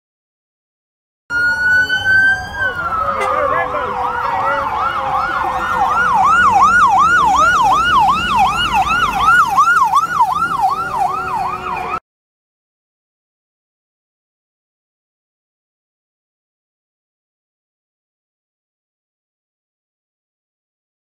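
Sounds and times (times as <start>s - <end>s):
siren yelping: 1.3s - 12.0s
steady siren tone dropping pitch: 1.3s - 12.0s.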